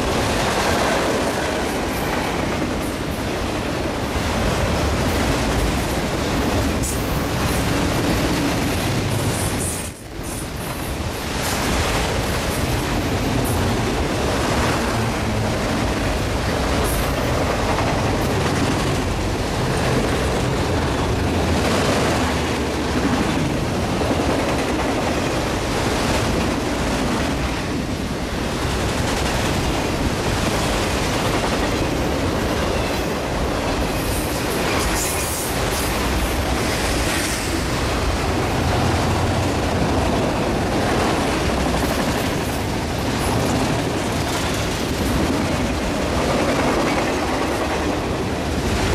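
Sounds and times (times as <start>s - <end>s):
freight train wheels rumbling: 0.0s - 48.9s
wheels clacking on rail: 0.0s - 48.9s.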